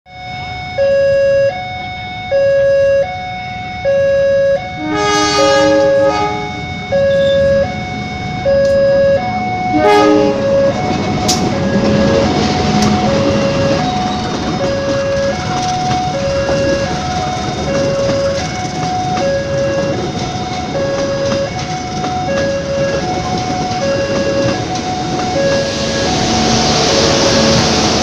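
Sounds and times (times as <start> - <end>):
level crossing two-tone signal: 0.1 - 28.0
train horn: 4.0 - 7.8, 8.6 - 14.0, 25.3 - 28.0
train passing rumble: 4.8 - 28.0
wheels clanking over rail: 10.7 - 28.0.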